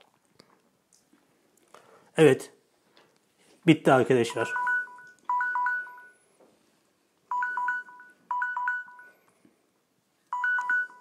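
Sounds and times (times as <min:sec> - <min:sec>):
timer alarm beeping: 0:04.4 - 0:06.2, 0:07.3 - 0:09.2, 0:10.3 - 0:11.0.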